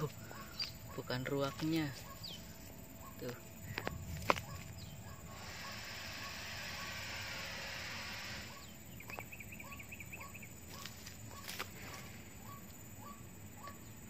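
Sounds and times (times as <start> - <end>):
steady hiss: 1.7 - 8.6.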